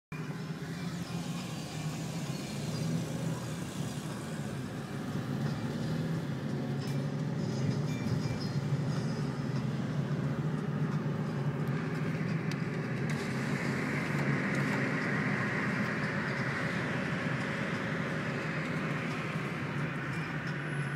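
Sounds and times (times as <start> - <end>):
car engine and exhaust drone: 0.1 - 20.9
road noise: 0.1 - 20.9
wind and tyre hiss: 0.2 - 20.9.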